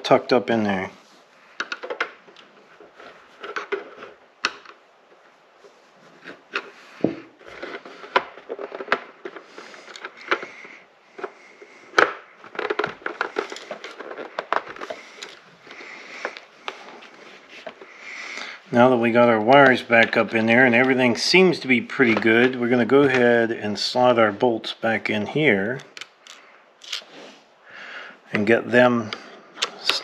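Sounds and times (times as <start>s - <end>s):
plastic clicks and scraping: 1.5s - 5.3s, 6.2s - 18.6s, 25.8s - 27.1s.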